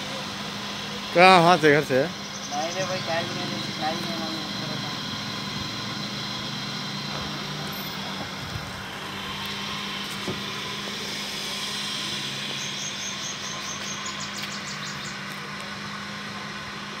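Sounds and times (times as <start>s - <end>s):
vehicle engine idling: 0.0s - 17.0s
rapid high chirps: 0.5s - 7.0s, 9.6s - 15.3s.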